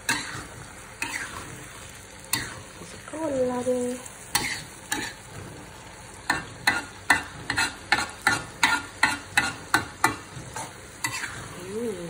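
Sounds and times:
vegetables sizzling: 0:00.0 - 0:12.0
metal spatula scraping a wok: 0:00.1 - 0:01.5, 0:06.4 - 0:11.6.

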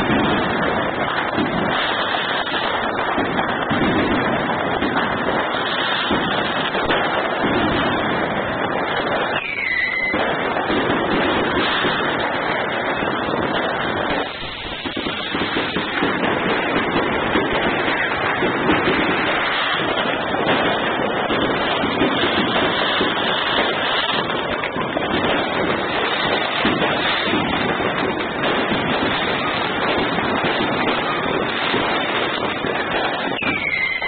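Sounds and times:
fireworks bangs: 0:00.0 - 0:34.0
falling firework whistle: 0:09.1 - 0:13.1, 0:17.6 - 0:34.0.

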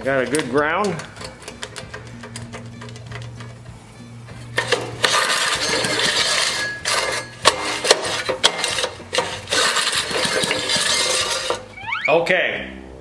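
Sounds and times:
engine cranked by recoil starter: 0:04.6 - 0:07.0, 0:08.5 - 0:11.6.

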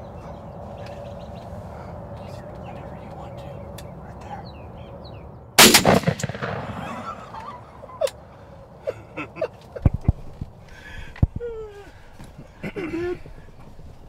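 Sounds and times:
shotgun blast with echo: 0:05.6 - 0:07.4.

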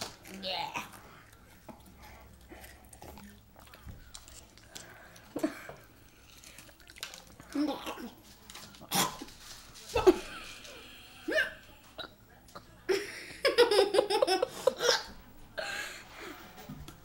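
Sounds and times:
child giggling: 0:13.4 - 0:15.1.

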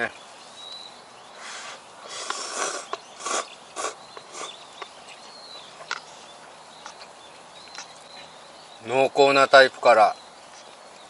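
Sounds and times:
faint high chirp: 0:00.1 - 0:01.4, 0:02.8 - 0:11.0
person slurping noodles: 0:01.5 - 0:04.5.

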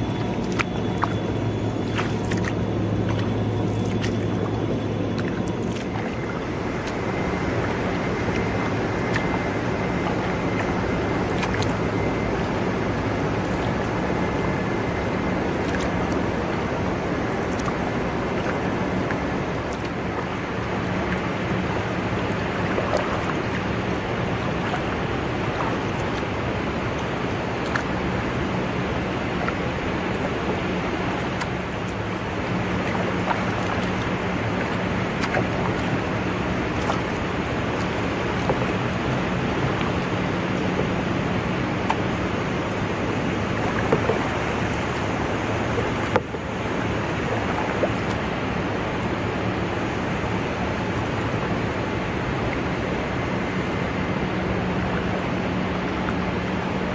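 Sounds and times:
low steady hum: 0:00.0 - 0:56.9.

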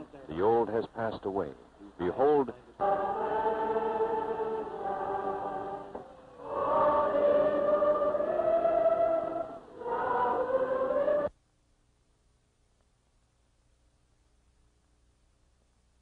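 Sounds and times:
choir singing: 0:02.8 - 0:11.3.

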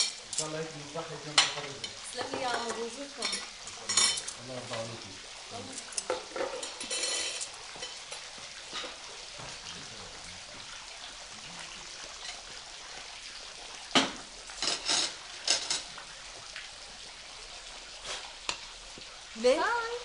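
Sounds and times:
faint hiss: 0:17.9 - 0:18.6.

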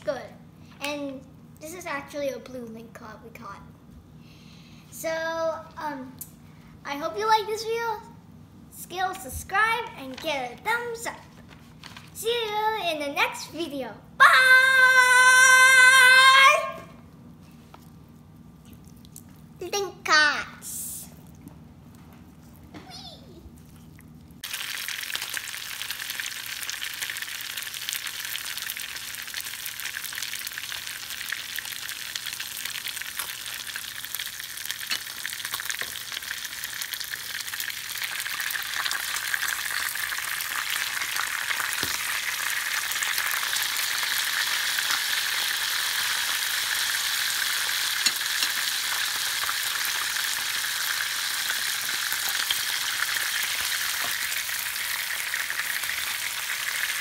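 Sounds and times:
fish sizzling in frying pan: 0:24.4 - 0:57.0.

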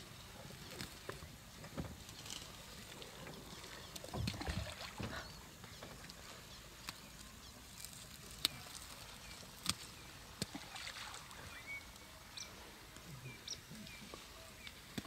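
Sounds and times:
water sloshing and dripping: 0:02.0 - 0:06.3, 0:09.7 - 0:11.8
elephant drinking water: 0:07.8 - 0:15.0.

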